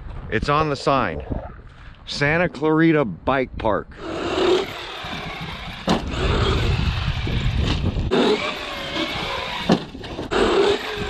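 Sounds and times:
falling motor whine: 0:04.0 - 0:11.0
rc truck running over gravel: 0:04.0 - 0:11.0
rc truck knocking on landing: 0:07.6 - 0:11.0.

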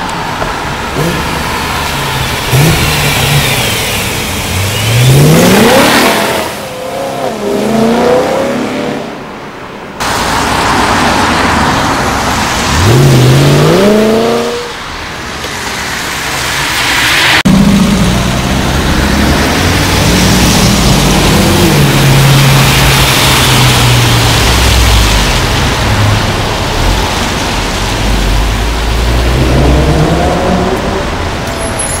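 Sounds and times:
car exhaust revving: 0:00.7 - 0:09.0, 0:12.2 - 0:14.7, 0:17.4 - 0:31.4.

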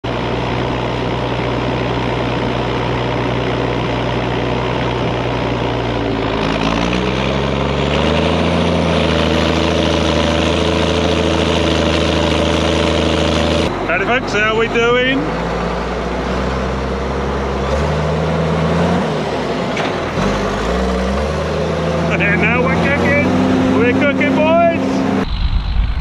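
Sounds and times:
diesel engine revving: 0:00.0 - 0:26.0
turbo whine: 0:22.0 - 0:26.0.

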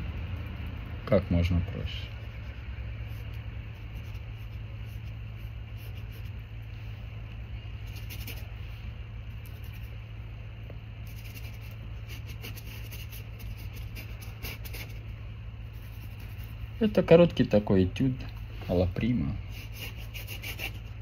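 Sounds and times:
low hum: 0:00.0 - 0:21.0
paintbrush scraping on canvas: 0:01.7 - 0:07.0, 0:07.8 - 0:08.8, 0:11.0 - 0:15.1, 0:15.7 - 0:16.8, 0:19.4 - 0:21.0.

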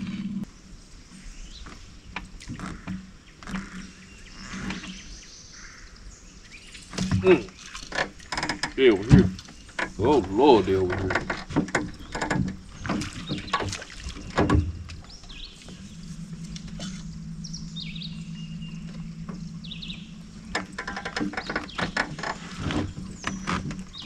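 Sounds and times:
steady low hum: 0:00.0 - 0:07.8, 0:08.8 - 0:24.0
fishing gear knocking and rattling: 0:06.9 - 0:15.1, 0:20.4 - 0:24.0
faint bird chirps: 0:15.0 - 0:20.7.

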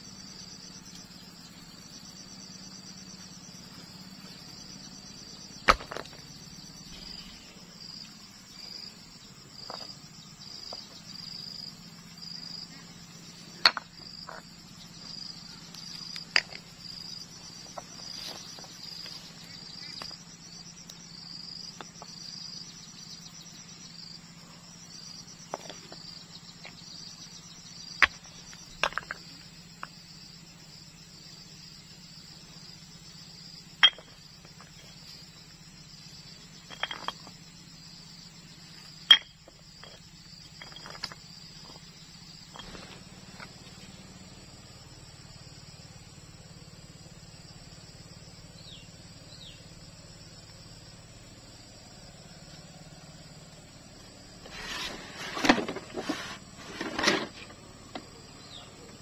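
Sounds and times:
insects chirping: 0:00.0 - 0:59.0
stones clacking together: 0:05.7 - 0:06.3, 0:13.6 - 0:14.5, 0:16.0 - 0:16.7, 0:28.0 - 0:29.9, 0:33.8 - 0:34.8, 0:36.6 - 0:37.4, 0:39.1 - 0:41.8, 0:42.5 - 0:43.5.

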